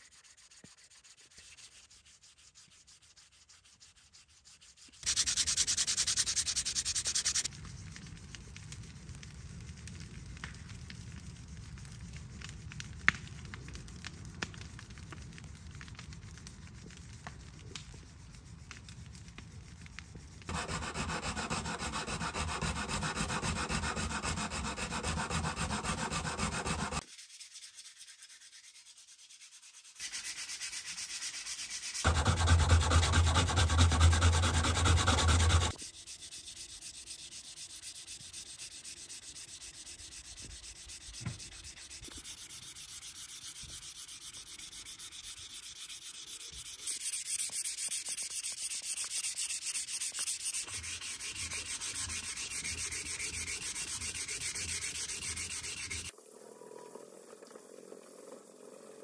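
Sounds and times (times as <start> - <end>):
sandpaper rubbing on wood: 0.0 - 7.5, 20.5 - 56.1.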